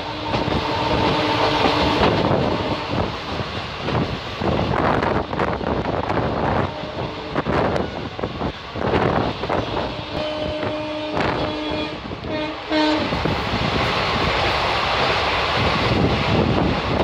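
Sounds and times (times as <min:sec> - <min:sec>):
train horn blasts: 0:00.0 - 0:03.1, 0:06.4 - 0:08.1, 0:09.5 - 0:13.3
moving train rumbling: 0:00.0 - 0:17.0
wind noise: 0:00.0 - 0:17.0.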